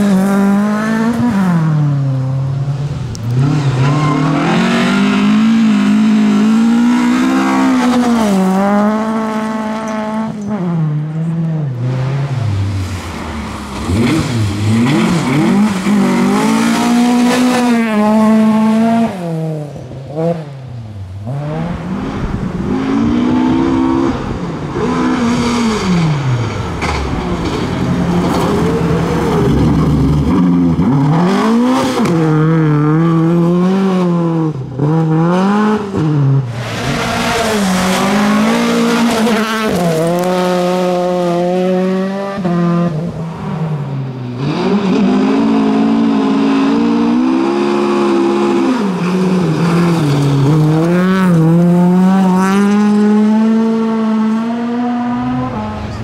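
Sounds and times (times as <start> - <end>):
rally car engines revving: 0.0 - 56.0.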